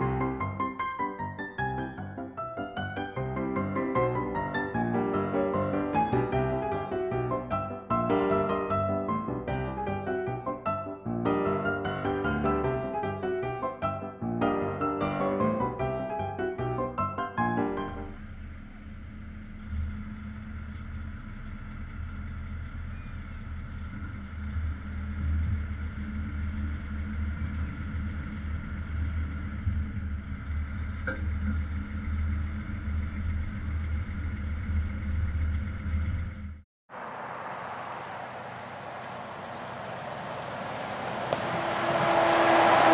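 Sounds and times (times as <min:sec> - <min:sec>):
truck diesel engine droning: 0:03.2 - 0:42.9
outdoor hiss: 0:36.9 - 0:41.5.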